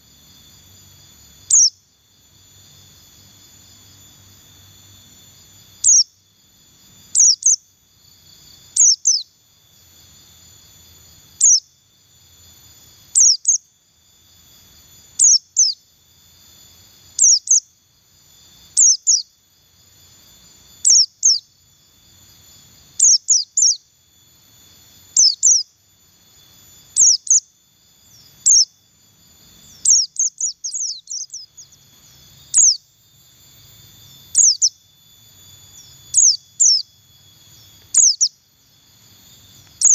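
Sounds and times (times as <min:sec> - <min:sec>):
high insect drone: 0:00.0 - 0:39.9
bird chirping: 0:00.7 - 0:13.8, 0:14.6 - 0:24.0, 0:24.9 - 0:25.8, 0:26.4 - 0:39.9.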